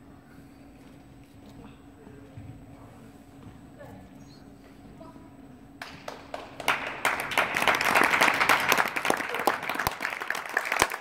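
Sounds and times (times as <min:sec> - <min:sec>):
crowd applauding: 0:05.8 - 0:11.0.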